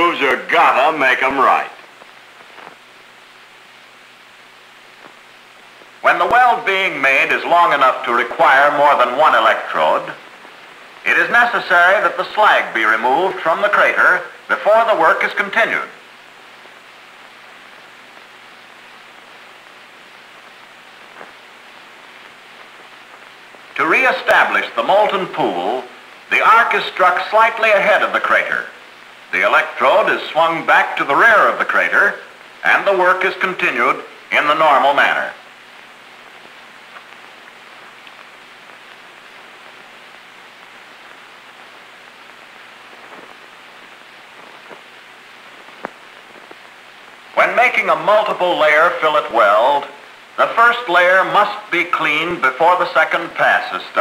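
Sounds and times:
welding arc crackling: 0.0 - 14.8, 15.4 - 54.0
old film soundtrack hiss: 0.0 - 54.0
welding pops: 1.7 - 6.5, 10.2 - 11.1, 16.0 - 23.8, 35.4 - 47.4.

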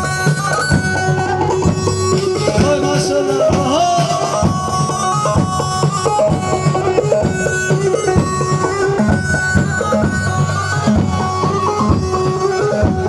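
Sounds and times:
reedy wind instrument melody: 0.0 - 13.0
steady drum beat: 0.0 - 13.0.

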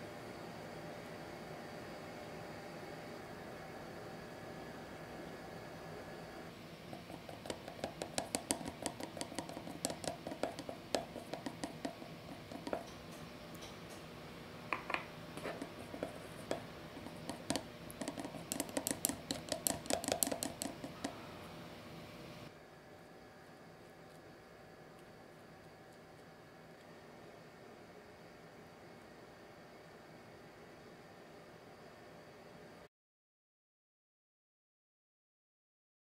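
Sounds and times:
chopsticks clicking against glass bowl: 17.2 - 21.2.

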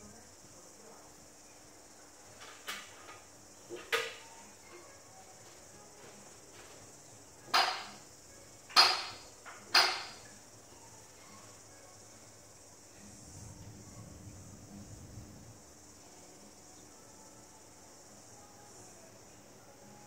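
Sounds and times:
steady high hiss: 0.0 - 20.0
sharp ringing knocks: 7.5 - 8.0, 8.8 - 10.3.

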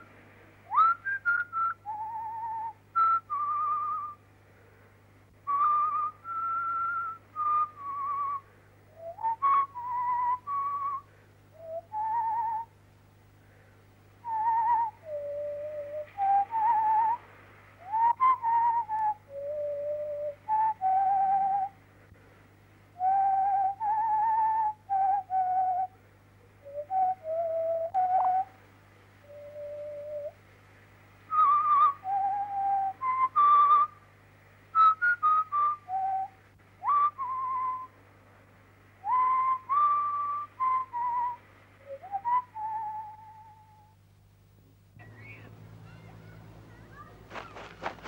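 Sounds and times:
steady low hum: 0.0 - 48.0
whistled melody: 0.7 - 4.2, 31.3 - 34.0, 34.8 - 38.0, 39.0 - 43.9.

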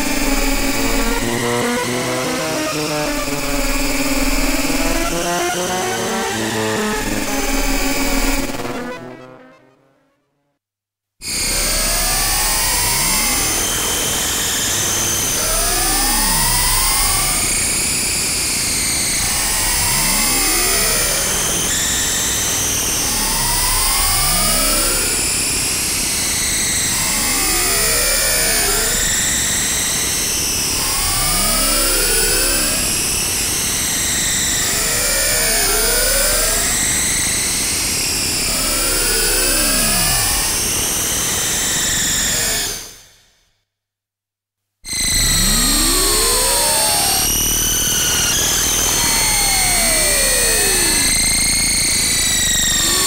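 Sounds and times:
synthesizer tones sweeping: 0.0 - 10.2.

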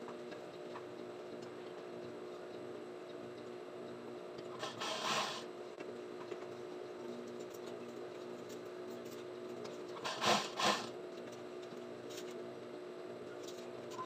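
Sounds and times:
sewing machine motor humming: 4.6 - 5.5, 10.0 - 10.9.

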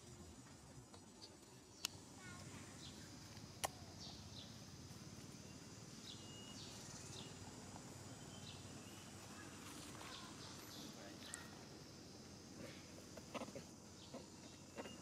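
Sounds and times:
faint high chirps: 1.6 - 11.8, 14.0 - 15.0.

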